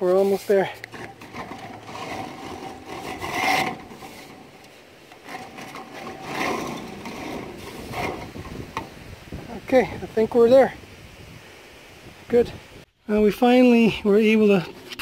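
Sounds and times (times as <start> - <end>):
metal vent liner scraping: 0.2 - 9.1, 14.3 - 15.0.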